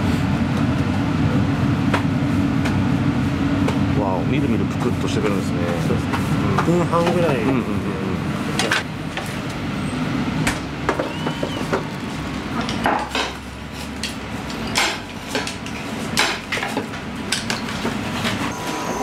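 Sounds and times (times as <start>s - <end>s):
utensils and dishes clinking: 12.6s - 18.4s.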